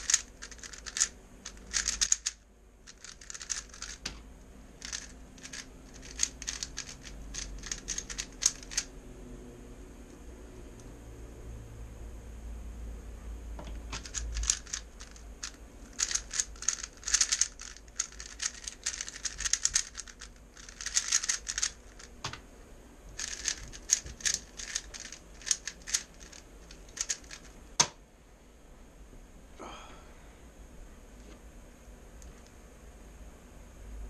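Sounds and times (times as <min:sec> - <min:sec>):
puzzle cube clicking: 0:00.0 - 0:04.2, 0:04.8 - 0:08.9, 0:13.9 - 0:22.1, 0:23.2 - 0:27.9.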